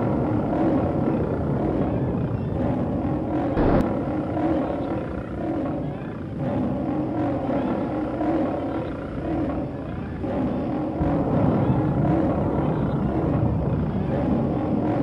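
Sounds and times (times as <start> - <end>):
low rumble: 3.5 - 4.4.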